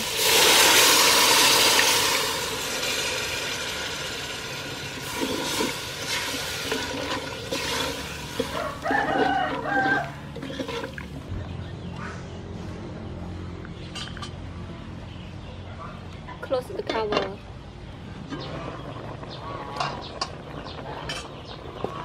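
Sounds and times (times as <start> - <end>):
liquid sizzling in hot pot: 0.0 - 11.2
wooden spoon scraping pot: 5.0 - 11.2
chicken calling: 8.2 - 10.3.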